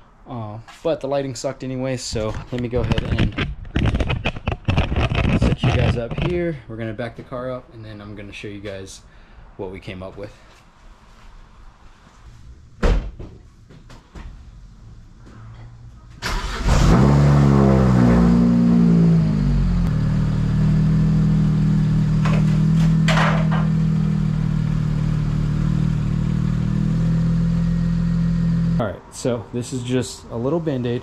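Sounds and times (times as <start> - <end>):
car engine starting and idling: 16.1 - 28.8.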